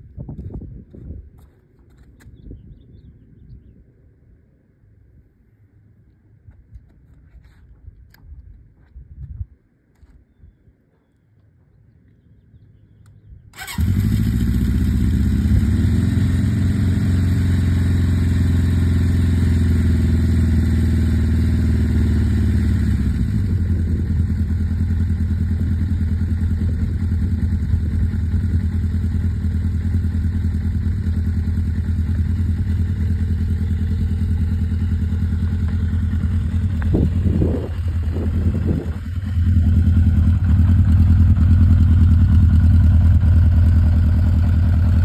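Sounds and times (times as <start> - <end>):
motorcycle engine starting and idling: 13.0 - 45.0.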